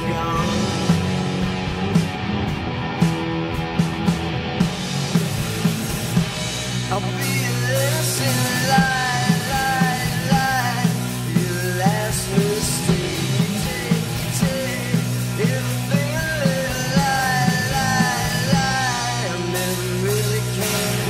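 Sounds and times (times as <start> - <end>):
man singing: 0.0 - 1.1, 6.9 - 21.0
drum kit: 0.0 - 21.0
electric bass: 0.0 - 21.0.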